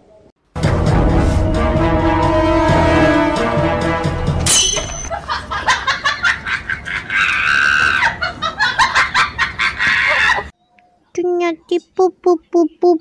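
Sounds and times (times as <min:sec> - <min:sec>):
person laughing: 0:05.1 - 0:10.5
rubber chicken toy squealing: 0:07.1 - 0:08.2.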